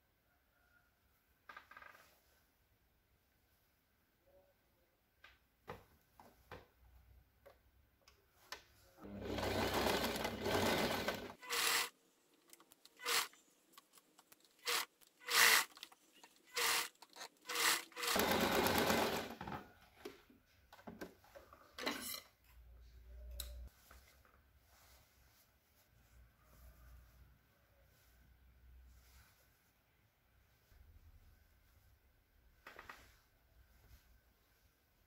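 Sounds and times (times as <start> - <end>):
sewing machine stitching: 9.0 - 11.9, 13.0 - 13.4, 14.6 - 15.8, 16.4 - 19.5.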